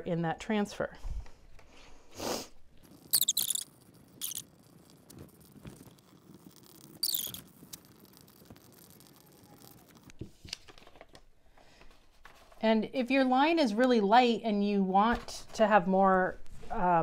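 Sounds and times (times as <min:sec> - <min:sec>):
pencil scratching on paper: 0:02.9 - 0:10.1.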